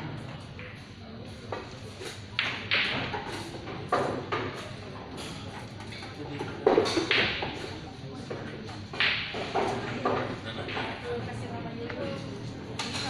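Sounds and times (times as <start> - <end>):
pool balls clacking: 2.4 - 4.6, 6.5 - 11.0.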